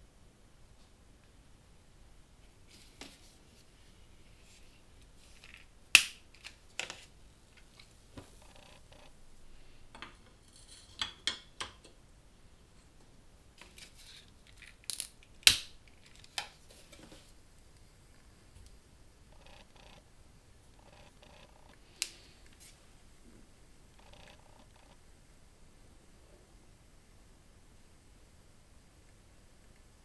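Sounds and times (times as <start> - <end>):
metal scrape: 10.4 - 11.0.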